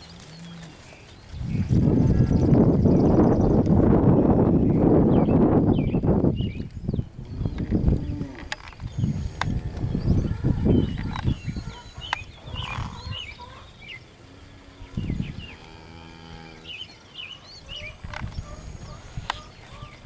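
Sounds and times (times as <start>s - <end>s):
cow mooing: 15.5s - 16.8s.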